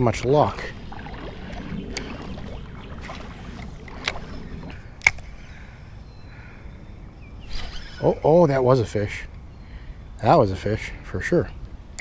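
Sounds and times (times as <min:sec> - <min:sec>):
creek water sloshing: 0:00.0 - 0:05.4
sharp clicks: 0:05.0 - 0:05.3.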